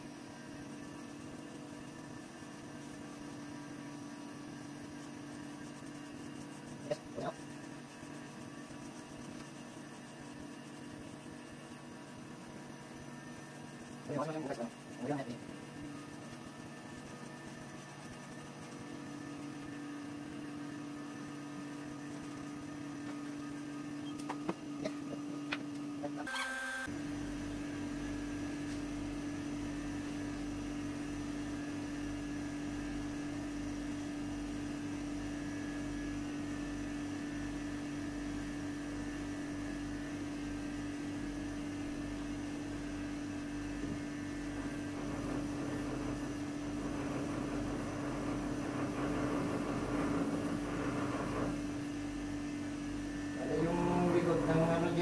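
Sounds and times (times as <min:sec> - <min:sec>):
electric clippers humming: 0:24.1 - 0:29.8.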